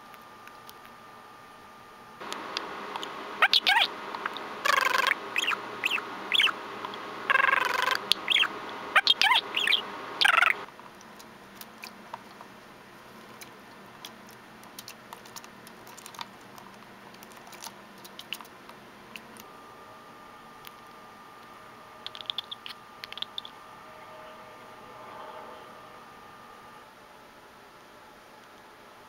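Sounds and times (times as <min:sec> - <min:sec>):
budgerigar chattering: 0:03.4 - 0:03.9, 0:04.6 - 0:06.6, 0:07.3 - 0:10.6, 0:22.1 - 0:23.6.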